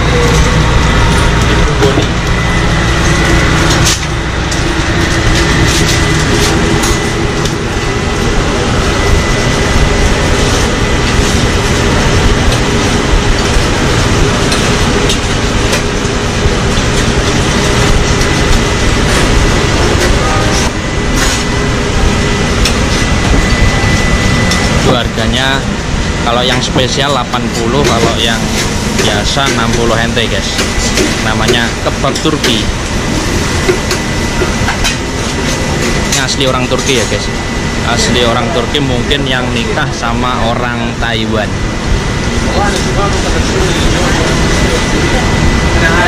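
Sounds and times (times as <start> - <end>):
deep steady hum: 0.0 - 46.0
scattered clicks and knocks: 12.2 - 21.5, 26.4 - 33.0.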